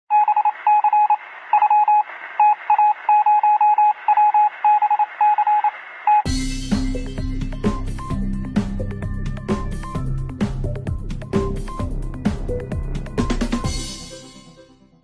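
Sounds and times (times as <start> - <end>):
morse code radio beeps: 0.1 - 6.3
music: 6.3 - 15.0.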